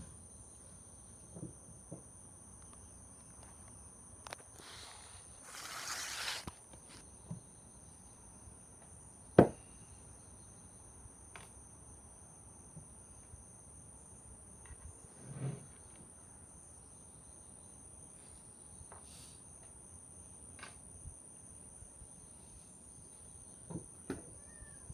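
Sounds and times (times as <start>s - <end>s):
high insect drone: 0.0s - 24.9s
brief rustle: 4.3s - 7.1s.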